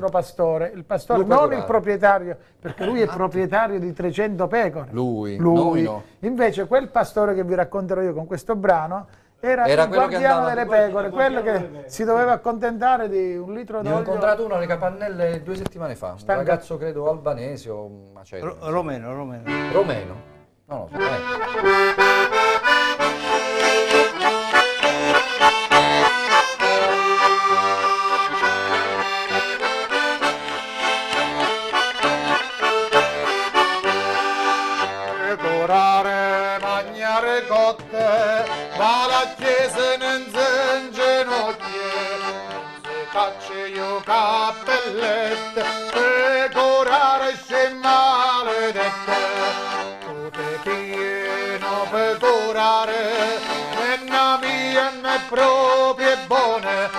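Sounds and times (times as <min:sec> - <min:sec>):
accordion playing folk tune: 0:01.0 - 0:04.1, 0:05.4 - 0:06.2, 0:09.6 - 0:12.0, 0:13.8 - 0:15.4, 0:18.6 - 0:56.9
man singing: 0:35.1 - 0:56.9.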